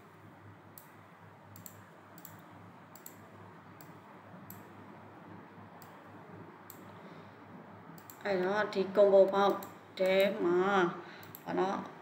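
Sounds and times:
faint mouse clicks: 0.8 - 3.2, 3.8 - 4.7, 8.0 - 8.2, 11.2 - 11.5.

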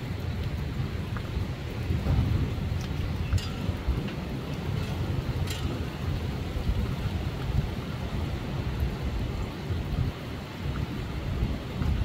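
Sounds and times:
faint drip-like ticks: 0.0 - 8.1
steady rain: 0.0 - 12.0
wind gusting on microphone: 0.0 - 12.0.

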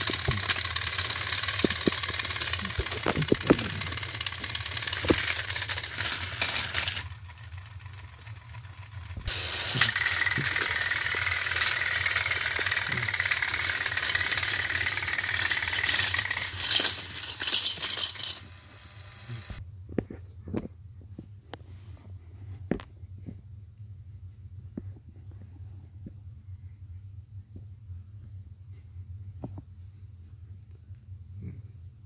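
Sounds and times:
small electric motor whining: 0.0 - 19.6
toy train wheels rattling: 0.0 - 19.6.

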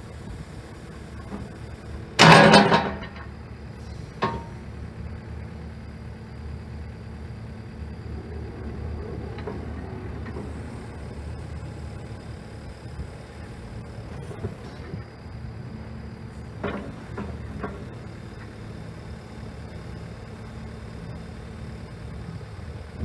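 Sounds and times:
excavator engine drone: 0.0 - 23.0
loud metal clank: 2.2 - 3.2.

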